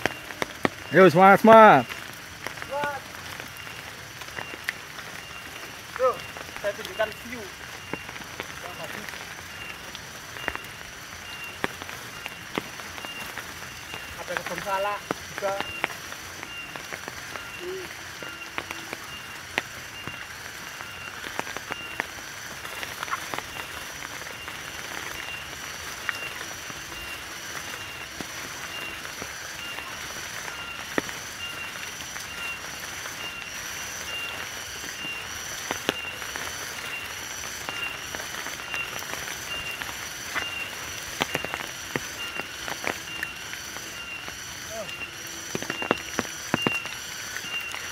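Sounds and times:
footsteps on muddy dirt trail: 0.0 - 47.9
high chirping of forest wildlife: 0.0 - 47.9.

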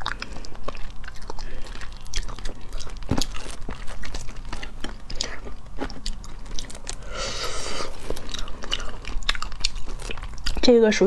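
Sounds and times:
crunching shells while chewing: 0.0 - 11.0.

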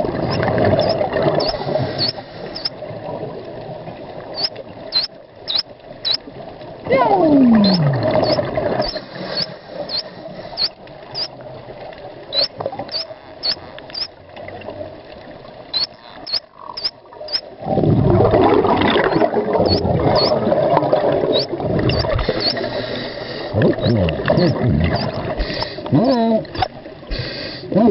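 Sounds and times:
dolphin chirps underwater: 0.2 - 2.8, 4.3 - 6.2, 7.0 - 11.3, 12.3 - 14.2, 15.7 - 17.5, 19.0 - 20.4, 21.3 - 22.7, 23.7 - 25.2
diver exhaling bubbles: 7.3 - 9.6, 17.6 - 27.2.

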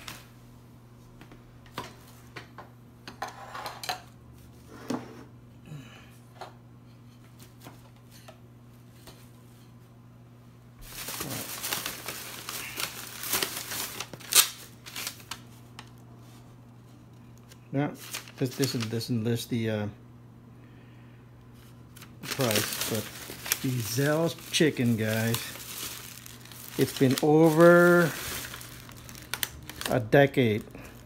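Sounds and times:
plastic bag rustling: 10.8 - 16.4, 18.0 - 19.0, 21.9 - 31.0.

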